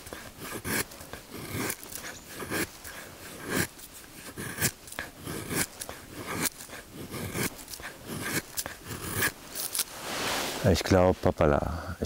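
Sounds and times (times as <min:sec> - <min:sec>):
knife shaving wood: 0:00.0 - 0:10.1.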